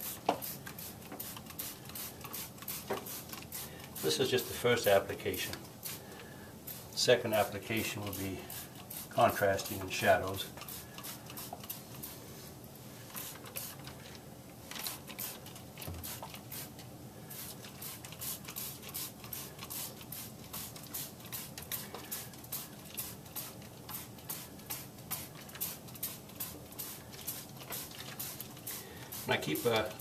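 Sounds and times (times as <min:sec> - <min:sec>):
spray bottle squirts: 0:00.0 - 0:04.2, 0:08.1 - 0:09.2, 0:10.6 - 0:12.2, 0:13.1 - 0:13.9, 0:14.8 - 0:29.9.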